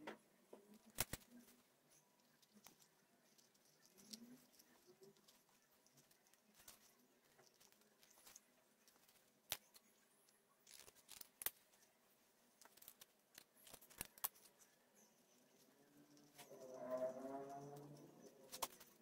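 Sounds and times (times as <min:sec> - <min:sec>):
scissors snipping: 0:00.9 - 0:01.4.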